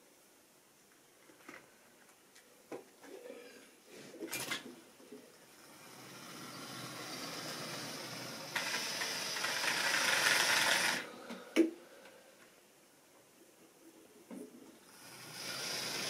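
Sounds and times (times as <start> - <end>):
steam hiss: 5.5 - 11.6, 14.8 - 16.0
model train rumble: 5.6 - 11.1.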